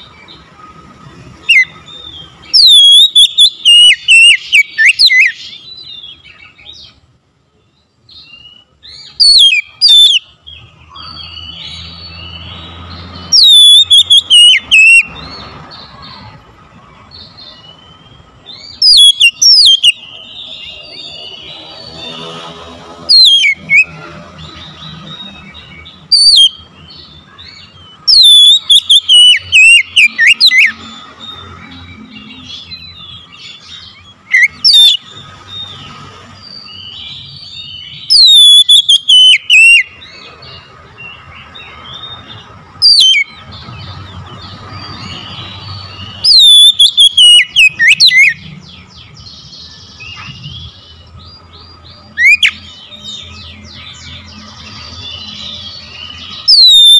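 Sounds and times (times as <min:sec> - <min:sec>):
soft bird chirping: 0:00.0 - 0:56.9
bird singing whistled phrases: 0:01.4 - 0:06.7, 0:08.2 - 0:15.2, 0:17.3 - 0:22.3, 0:23.1 - 0:24.0, 0:24.8 - 0:35.0, 0:36.5 - 0:40.0, 0:42.8 - 0:43.4, 0:45.0 - 0:48.5, 0:52.0 - 0:54.2, 0:55.1 - 0:56.9.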